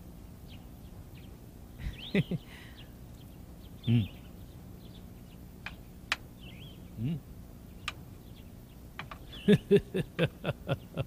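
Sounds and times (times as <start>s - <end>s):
faint bird chirps: 0.4s - 9.8s
man humming low: 3.8s - 4.2s, 7.0s - 7.3s.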